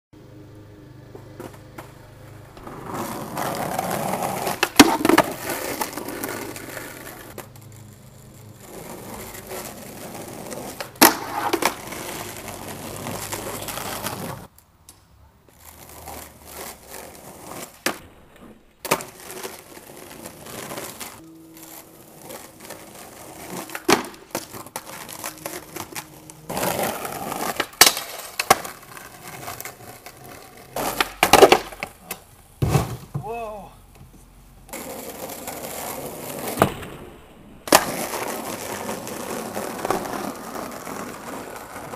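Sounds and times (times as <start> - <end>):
skateboard wheels rolling on asphalt: 0.2 - 41.9
skateboard clacks: 1.1 - 7.9, 8.7 - 14.6, 22.4 - 33.3, 37.6 - 41.9.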